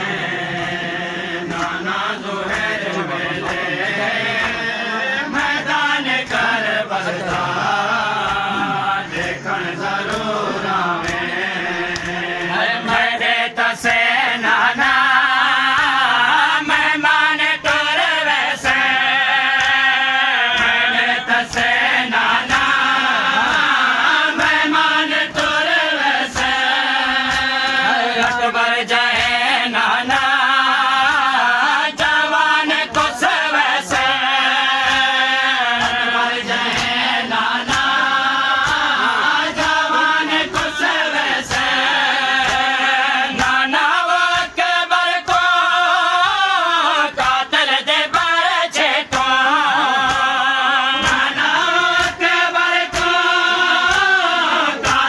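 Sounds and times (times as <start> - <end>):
men chanting in unison: 0.0 - 55.0
chest-beating slaps: 8.2 - 13.1, 34.8 - 43.7, 51.0 - 55.0.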